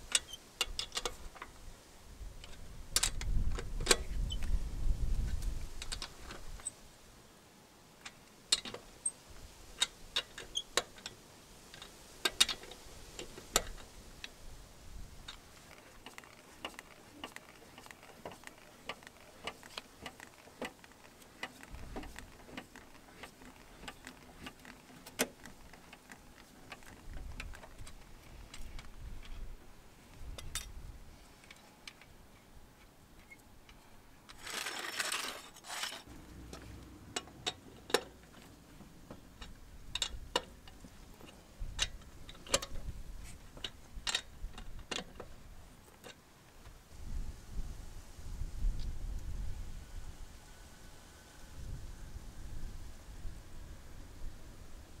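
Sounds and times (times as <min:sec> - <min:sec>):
wheel brace metallic clicks: 0:00.0 - 0:01.5, 0:02.4 - 0:04.6, 0:05.3 - 0:06.8, 0:08.0 - 0:09.2, 0:09.8 - 0:14.4, 0:15.2 - 0:29.5, 0:33.2 - 0:46.2
short scraping noise: 0:34.4 - 0:36.1.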